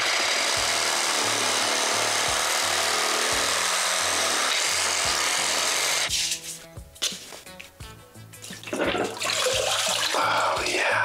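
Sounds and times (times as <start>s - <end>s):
reciprocating saw cutting plastic pipe: 0.0s - 6.4s.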